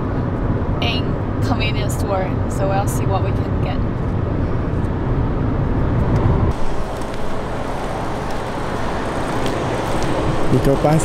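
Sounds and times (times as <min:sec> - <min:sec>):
car cabin road rumble: 0:00.0 - 0:11.0
outdoor background hiss: 0:06.5 - 0:11.0.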